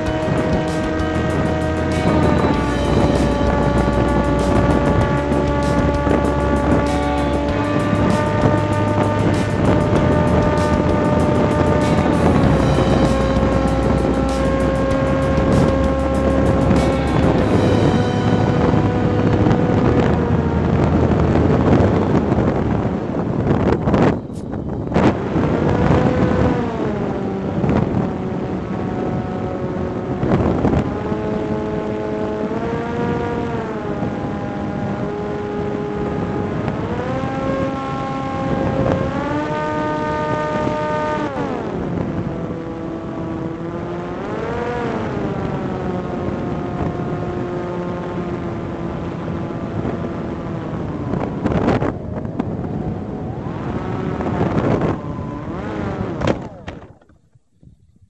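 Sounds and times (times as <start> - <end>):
wind gust thumps: 0.0 - 25.9
electric motor and propeller whining: 0.0 - 57.2
wind buffeting microphone: 0.0 - 58.0.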